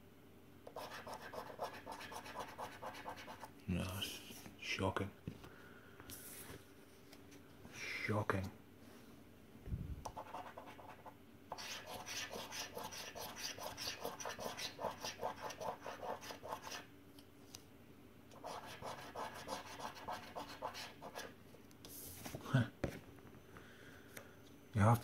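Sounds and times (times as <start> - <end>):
scratchcard being scraped: 0.8 - 3.5, 10.2 - 16.9, 18.4 - 21.3.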